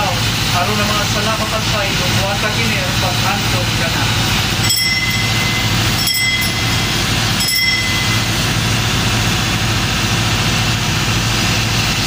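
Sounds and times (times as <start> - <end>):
ship machinery drone: 0.0 - 12.0
small bell ringing: 4.5 - 9.0.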